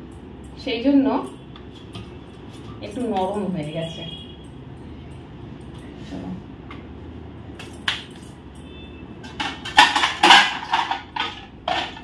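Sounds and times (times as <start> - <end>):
metal dishes clattering: 9.2 - 12.0.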